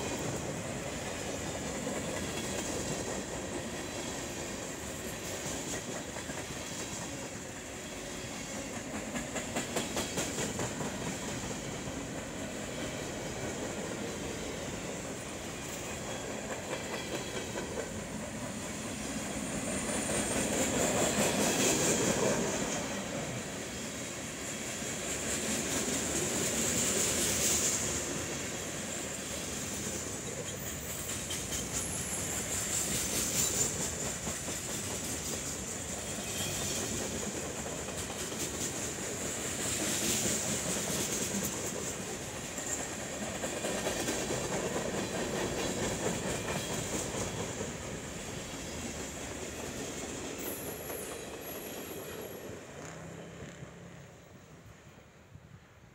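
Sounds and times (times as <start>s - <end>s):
freight train cars rolling past: 0.0s - 55.8s
wheels clicking over rail joints: 8.6s - 23.1s, 29.7s - 52.8s.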